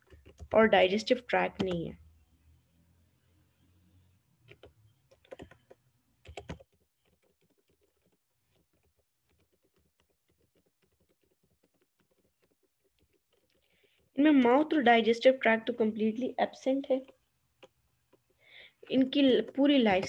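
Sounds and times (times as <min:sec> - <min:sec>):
typing on keyboard: 0:00.0 - 0:00.6, 0:01.6 - 0:01.9, 0:04.4 - 0:14.1.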